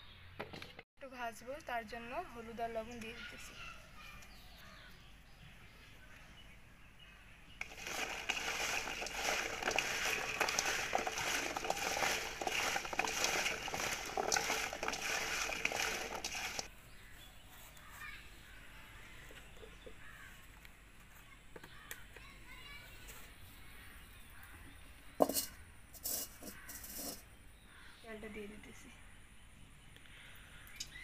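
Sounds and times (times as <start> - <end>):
potato pieces scraping metal bowl: 7.6 - 16.7, 25.2 - 27.2.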